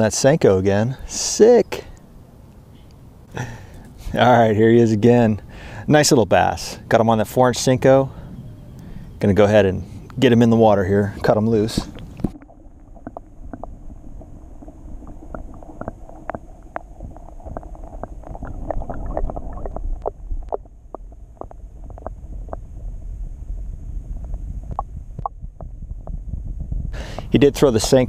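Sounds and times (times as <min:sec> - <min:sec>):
underwater churning rumble: 0:06.5 - 0:28.0
small underwater clicks and pops: 0:11.2 - 0:26.4.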